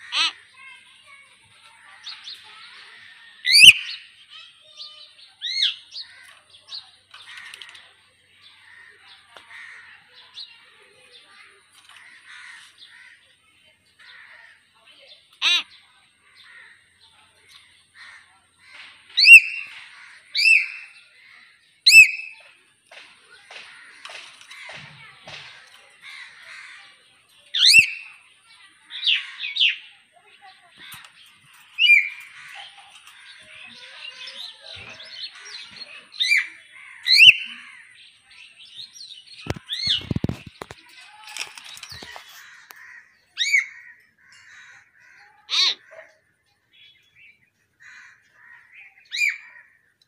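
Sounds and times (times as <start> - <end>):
myna bird whistling: 3.5 - 4.0, 19.2 - 19.7
background bird twittering: 15.2 - 45.9
faint short bird calls: 44.6 - 46.2.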